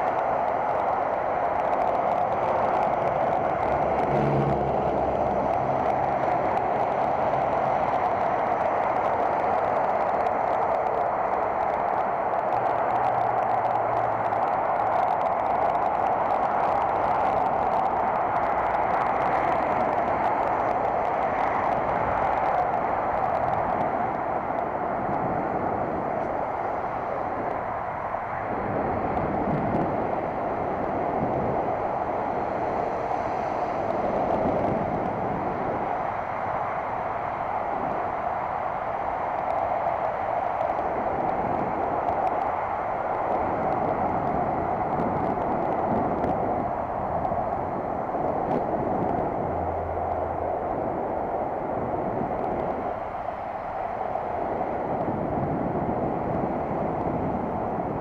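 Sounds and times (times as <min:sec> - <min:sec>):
bicycle road noise: 0:00.0 - 0:58.0
rushing wind: 0:00.0 - 0:58.0
low rumble: 0:01.8 - 0:09.2.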